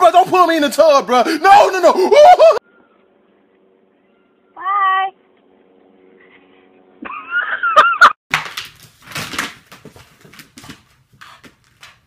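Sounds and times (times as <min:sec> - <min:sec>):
knocks and scuffling: 0:08.3 - 0:12.0.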